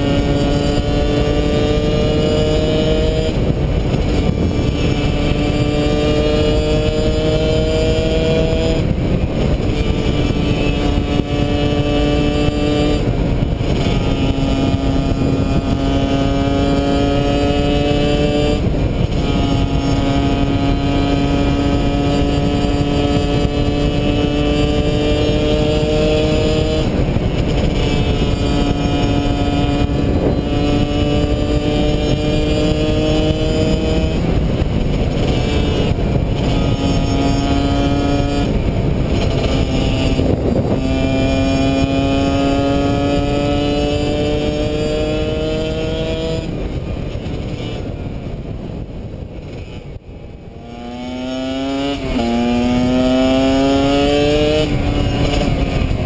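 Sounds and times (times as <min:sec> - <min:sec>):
motorcycle engine at speed: 0:00.0 - 0:56.0
wind noise on microphone: 0:00.0 - 0:56.0.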